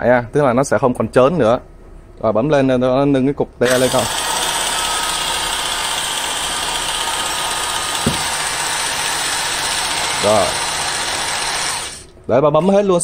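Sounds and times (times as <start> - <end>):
electric hoist motor running: 3.6 - 13.0
brief knock: 8.0 - 8.3.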